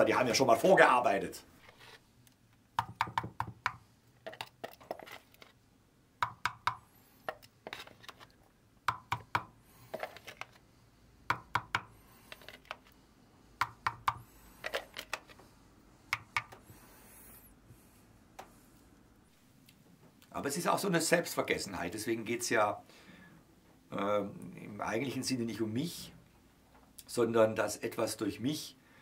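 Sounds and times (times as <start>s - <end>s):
painting knife knocking and scraping: 2.8s - 5.2s, 6.2s - 8.2s, 8.9s - 10.4s, 11.3s - 12.6s.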